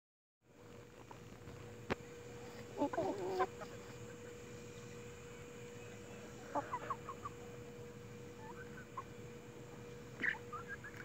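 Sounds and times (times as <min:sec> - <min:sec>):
faint steady hum: 0:00.5 - 0:11.0
hens clucking: 0:02.5 - 0:04.7, 0:06.2 - 0:09.2, 0:09.8 - 0:11.0.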